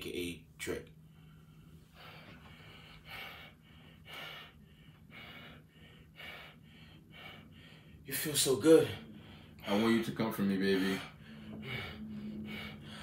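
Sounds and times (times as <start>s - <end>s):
man panting heavily: 1.1s - 13.0s.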